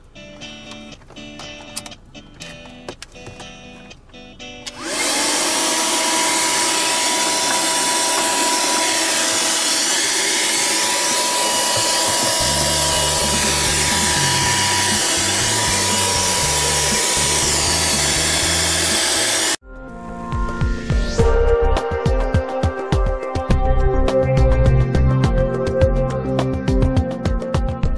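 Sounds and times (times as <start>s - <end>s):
bass line of background music: 0.0s - 4.7s, 11.7s - 27.9s
car vacuum cleaner running: 4.7s - 19.6s.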